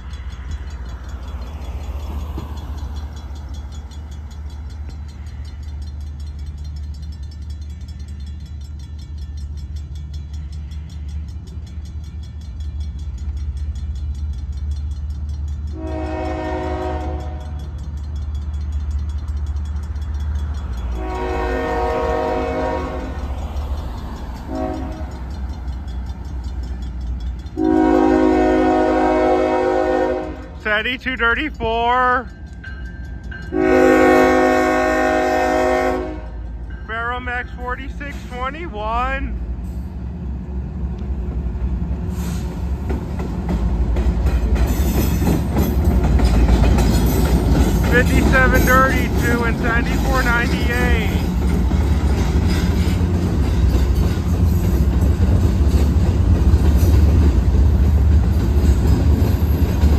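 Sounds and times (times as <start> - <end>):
low train rumble: 0.0 - 59.9
locomotive horn blasts: 15.7 - 17.7, 20.9 - 23.2, 24.4 - 25.3, 27.6 - 30.7, 33.5 - 36.5, 47.9 - 51.2.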